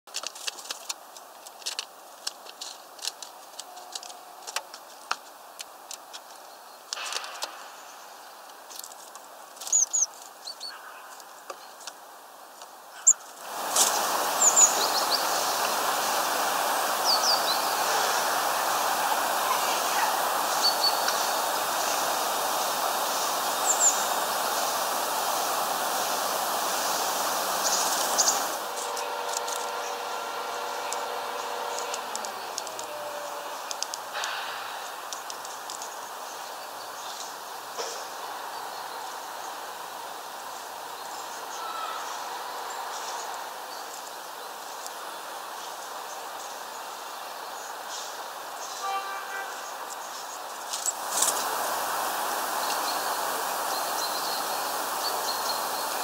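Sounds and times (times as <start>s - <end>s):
steady hiss: 0.1s - 56.0s
small birds chirping: 5.0s - 12.0s, 12.9s - 39.6s, 49.7s - 56.0s.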